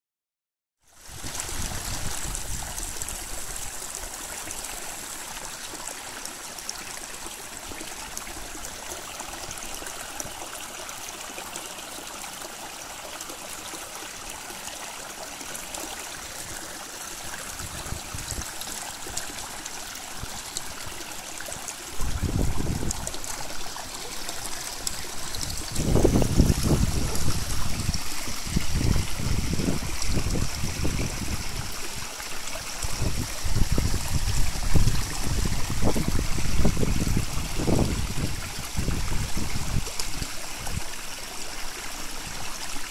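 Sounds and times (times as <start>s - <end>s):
stream rushing over waterfall: 0.9s - 42.9s
low rumble on microphone: 24.9s - 32.0s.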